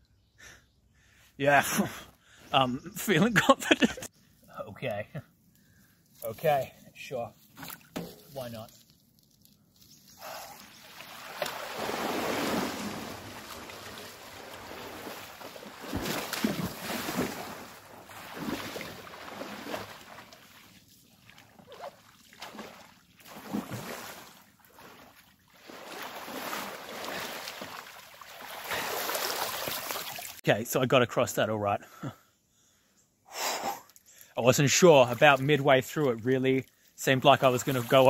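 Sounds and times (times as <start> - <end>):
water splashing and sloshing: 7.4 - 8.5, 10.2 - 30.4, 34.7 - 38.0.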